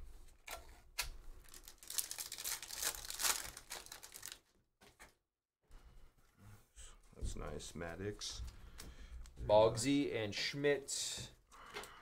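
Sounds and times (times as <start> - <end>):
cards and foil wrapper crinkling: 1.4 - 4.5.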